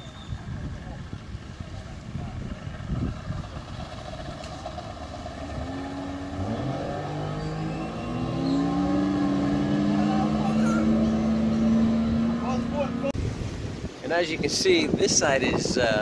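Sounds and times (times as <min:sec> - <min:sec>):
wind buffeting microphone: 0:00.0 - 0:16.0
outboard motor throttling up: 0:01.4 - 0:13.2.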